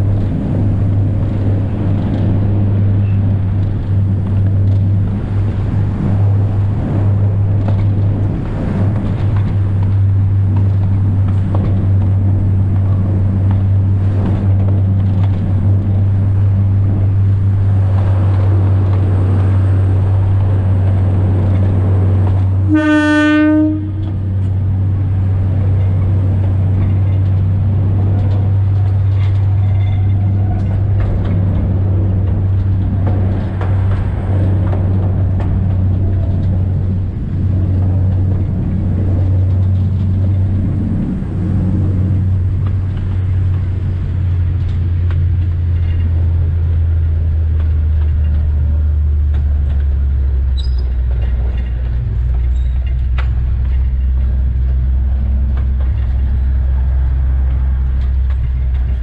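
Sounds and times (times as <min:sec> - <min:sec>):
train engine drone: 0:00.0 - 0:59.0
train horn blast: 0:22.6 - 0:24.3.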